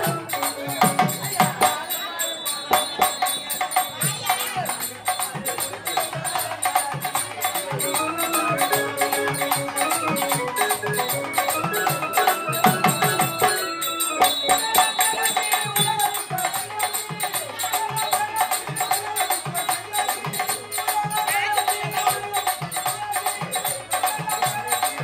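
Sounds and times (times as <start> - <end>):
hand drums beating: 0.0 - 25.0
jingling percussion: 0.0 - 25.0
held melody line: 7.7 - 16.5.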